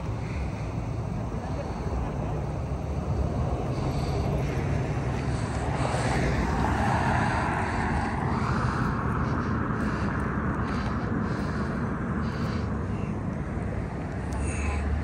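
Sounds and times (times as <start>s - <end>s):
low rumble of traffic: 0.0s - 15.0s
car driving past: 2.8s - 12.8s.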